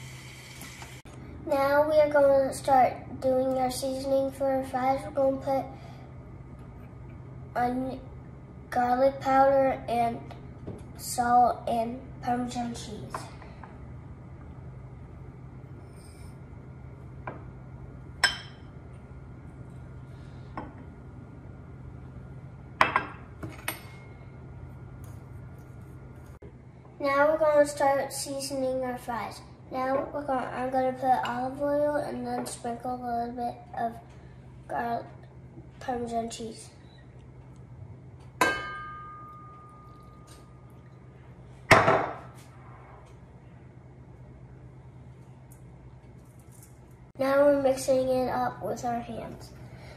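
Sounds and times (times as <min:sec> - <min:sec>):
low steady hum: 0:00.0 - 0:49.9
glass bowls clinking: 0:18.2 - 0:18.7, 0:38.4 - 0:41.0.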